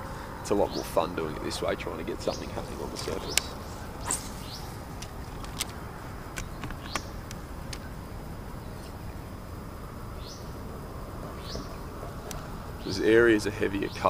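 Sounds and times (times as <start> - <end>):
birds chirping: 0.0 - 14.0
open-air hiss: 0.0 - 14.0
sharp ticks: 2.8 - 7.9.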